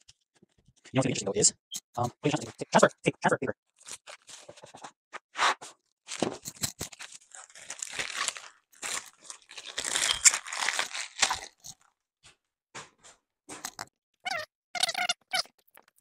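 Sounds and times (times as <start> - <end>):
paper crinkling and tearing: 3.7 - 11.7.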